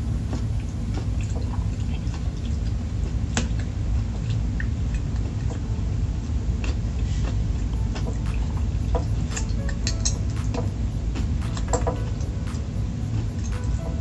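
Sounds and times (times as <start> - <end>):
steady low hum: 0.0 - 14.0
chewing: 0.2 - 10.3.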